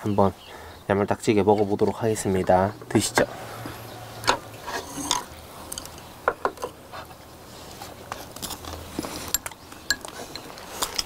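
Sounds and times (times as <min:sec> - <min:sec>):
biting and chewing: 0:07.8 - 0:11.0.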